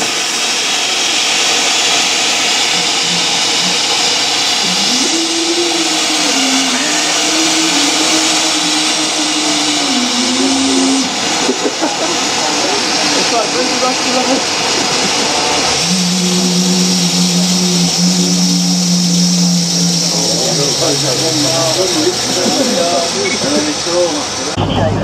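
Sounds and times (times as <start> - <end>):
steam hissing: 0.0 - 24.7
low droning tone: 2.6 - 11.9, 15.5 - 23.5.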